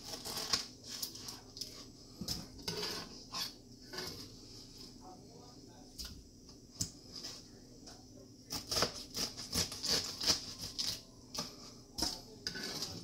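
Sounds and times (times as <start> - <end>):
knife chopping pineapple: 8.5 - 13.0.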